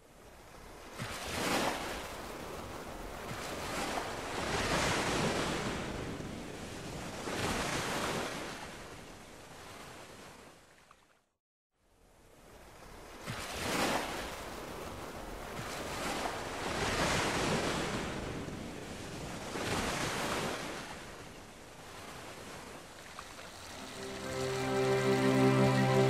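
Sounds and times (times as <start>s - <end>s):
waves washing on shore: 0.3s - 10.5s, 12.4s - 26.0s.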